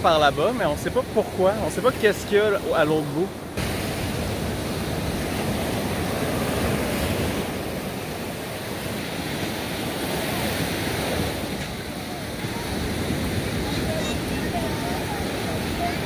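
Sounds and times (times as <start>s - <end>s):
ocean surf on sandy beach: 0.0s - 16.0s
wind on microphone: 3.6s - 16.0s.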